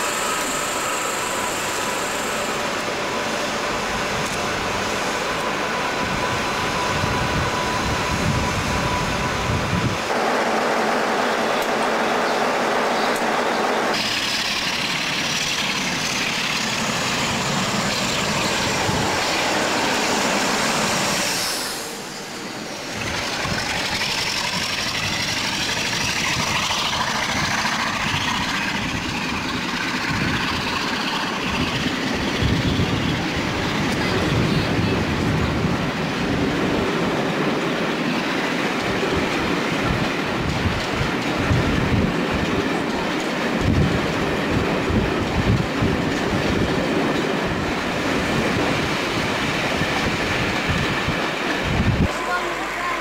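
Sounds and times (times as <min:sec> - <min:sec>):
train coaches rumbling past: 0:00.0 - 0:53.0
train with high whine: 0:00.0 - 0:53.0
wheels clattering on rails: 0:11.2 - 0:21.2, 0:22.7 - 0:52.9.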